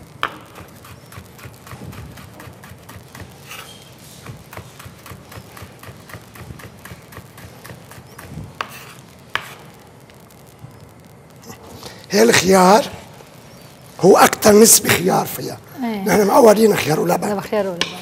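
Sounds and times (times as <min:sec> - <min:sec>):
knife chopping on wooden board: 0:00.2 - 0:02.5, 0:03.1 - 0:08.0, 0:08.6 - 0:09.6.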